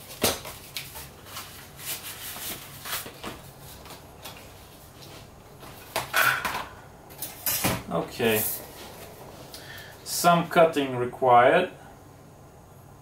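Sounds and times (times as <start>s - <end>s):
paper rustling and shuffling: 0.0s - 6.2s.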